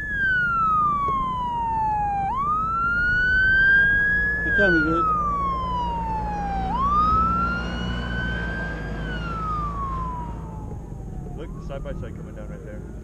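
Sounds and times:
emergency siren wailing: 0.0 - 13.0.

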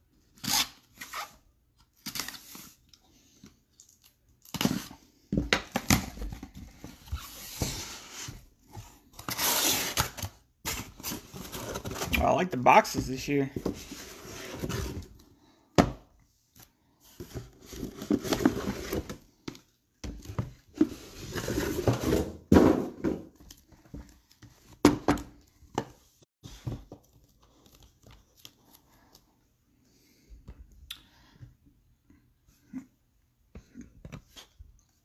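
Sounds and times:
cardboard boxes rustling and scraping: 5.8 - 12.2, 13.3 - 15.3, 17.0 - 24.8
boxes knocking on table: 21.8 - 23.3.

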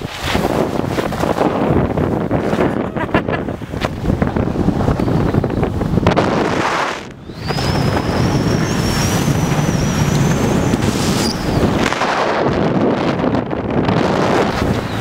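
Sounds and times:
wind on microphone: 0.0 - 15.0
high wavering whine: 7.0 - 12.1.

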